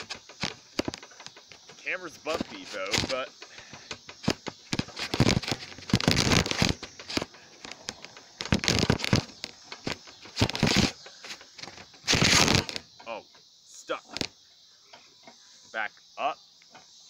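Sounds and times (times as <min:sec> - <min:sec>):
camera rustling and knocking: 0:00.0 - 0:13.0, 0:14.1 - 0:14.3.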